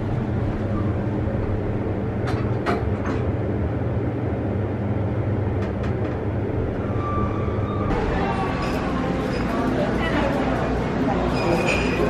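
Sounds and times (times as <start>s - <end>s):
elevator rumble and hum: 0.0s - 12.0s.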